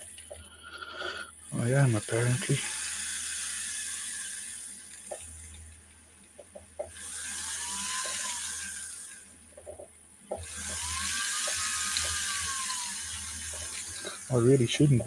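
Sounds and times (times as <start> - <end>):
rotary tool whining: 0.0 - 15.0.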